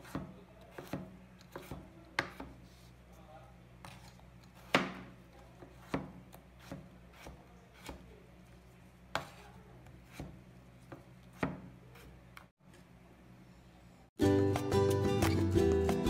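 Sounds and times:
knife chopping on wooden board: 0:00.0 - 0:02.6, 0:03.9 - 0:08.1, 0:09.1 - 0:12.5.

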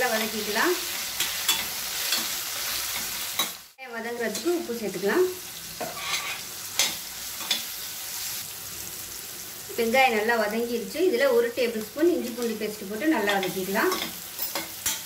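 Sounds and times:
onions sizzling in hot oil: 0:00.0 - 0:15.0
metal spatula scraping pan: 0:05.8 - 0:07.8.

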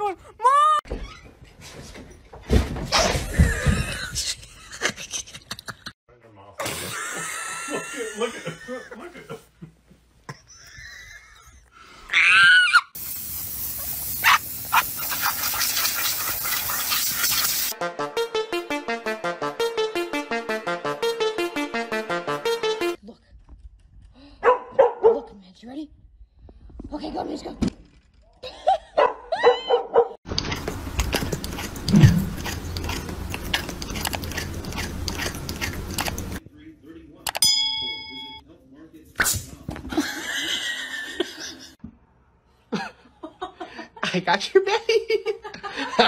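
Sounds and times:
high animal cries: 0:12.1 - 0:13.0
steady hiss: 0:13.0 - 0:17.7
cat crunching dry kibble: 0:30.4 - 0:36.4.

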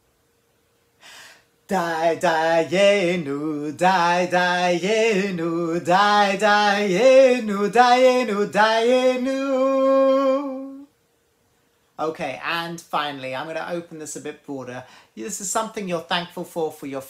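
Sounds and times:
man singing unaccompanied: 0:01.6 - 0:10.9.

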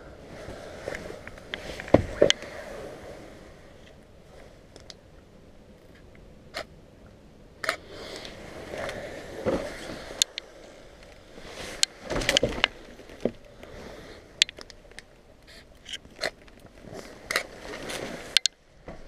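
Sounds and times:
scuffs and scrapes of debris: 0:07.7 - 0:19.0.

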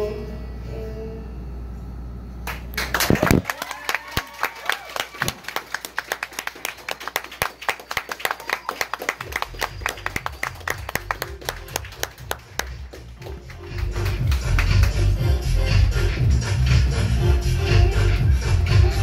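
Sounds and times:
audience clapping: 0:02.4 - 0:15.2
pulsing bass beat music: 0:09.2 - 0:19.0.

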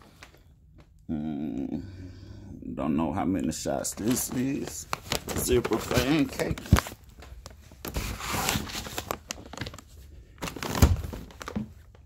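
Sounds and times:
packaging rustling and crinkling: 0:03.8 - 0:12.0.

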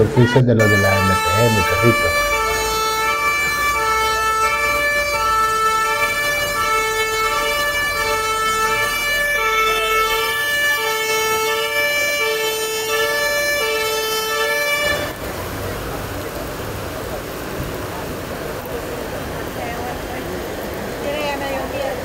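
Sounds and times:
two-tone siren: 0:00.0 - 0:15.2.

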